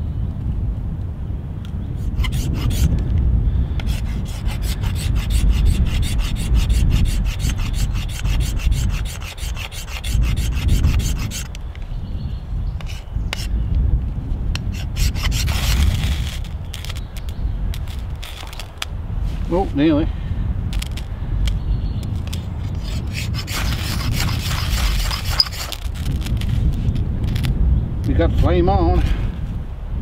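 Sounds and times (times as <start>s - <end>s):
ferro rod scraped with striker: 2.0s - 3.0s, 3.8s - 11.6s, 12.8s - 13.5s, 14.6s - 18.9s, 20.7s - 21.1s, 22.0s - 26.6s.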